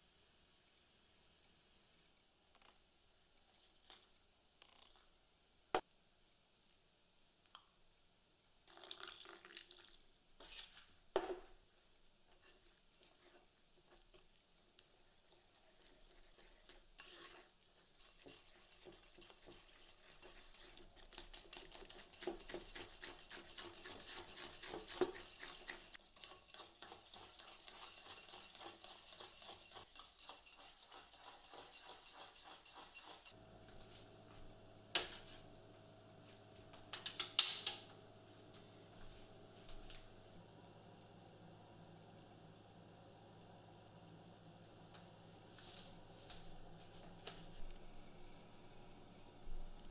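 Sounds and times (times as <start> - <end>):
utensil scraping a ceramic bowl: 12.3 - 14.2, 14.8 - 33.4
steady low hum: 33.4 - 49.9.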